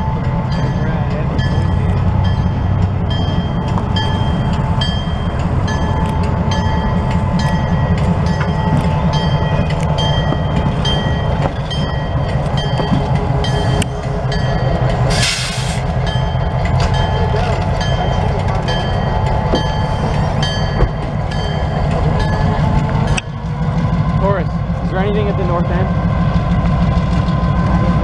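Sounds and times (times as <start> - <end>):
locomotive bell ringing: 0.0 - 15.2, 15.8 - 28.0
locomotive diesel engine running: 0.0 - 28.0
air hiss burst: 15.1 - 15.8.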